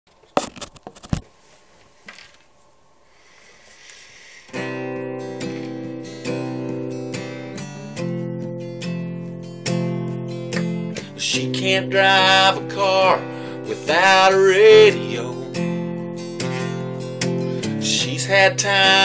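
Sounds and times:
acoustic guitar strummed: 4.5s - 19.0s.

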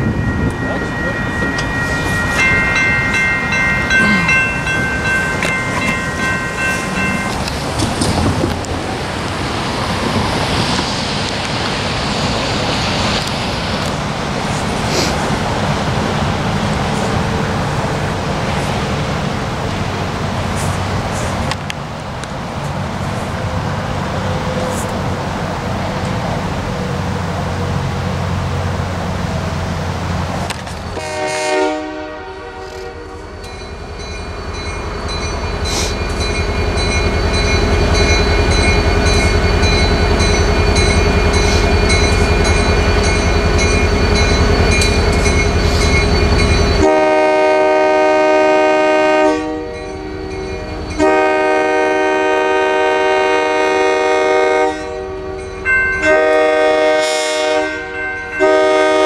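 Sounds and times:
diesel locomotive horn blasts: 30.9s - 33.4s, 46.7s - 50.1s, 51.0s - 59.0s
locomotive engine rumble: 32.4s - 49.1s.

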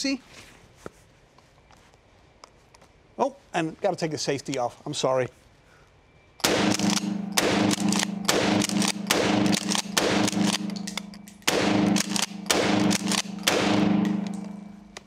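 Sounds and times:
shotgun shots echoing: 6.4s - 15.0s.

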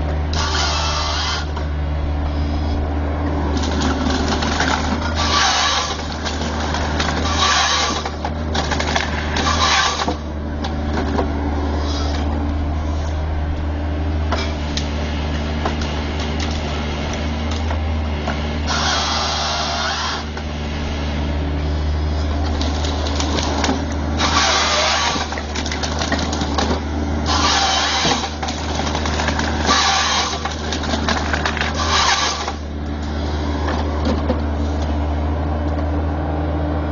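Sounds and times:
excavator diesel engine and hydraulics: 0.0s - 36.9s
harvester head sawing tree stems: 0.3s - 1.7s, 3.5s - 11.0s, 11.6s - 13.3s, 18.3s - 33.7s.

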